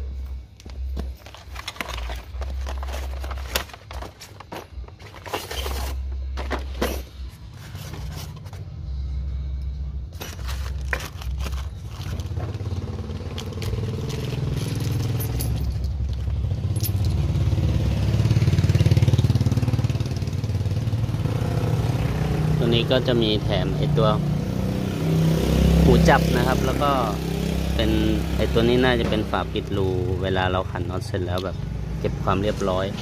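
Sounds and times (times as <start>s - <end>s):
vehicle engine hum: 0.0s - 33.0s
packaging crinkling: 1.0s - 6.0s, 10.2s - 15.0s.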